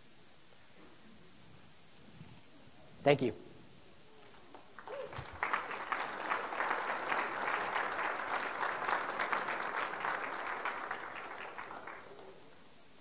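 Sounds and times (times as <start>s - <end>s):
audience applauding: 4.5s - 12.6s.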